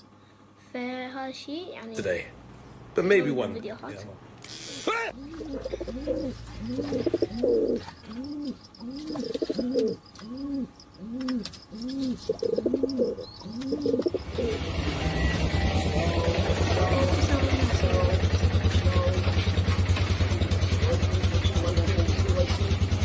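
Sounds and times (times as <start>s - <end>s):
engine running: 0.0s - 23.0s
pigeon cooing: 5.0s - 15.9s.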